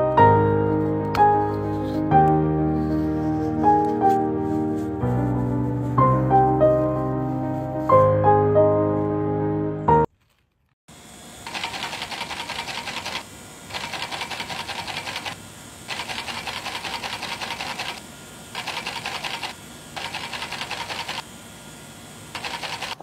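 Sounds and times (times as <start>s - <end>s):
small machine clattering rapidly: 11.4s - 21.2s, 22.3s - 23.0s.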